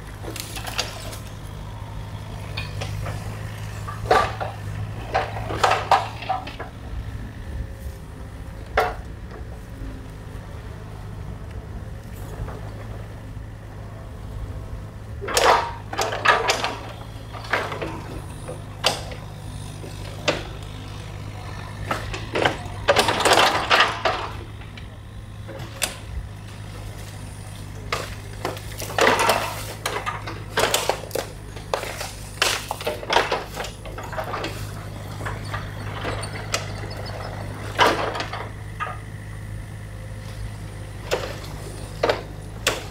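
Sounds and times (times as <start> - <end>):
excavator diesel engine running: 0.0 - 42.9
sticks cracking and scraping: 0.2 - 1.6, 25.5 - 35.8.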